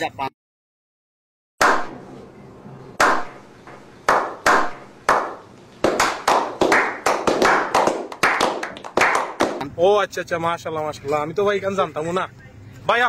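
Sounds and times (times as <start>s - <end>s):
group clapping slowly: 4.1s - 9.7s.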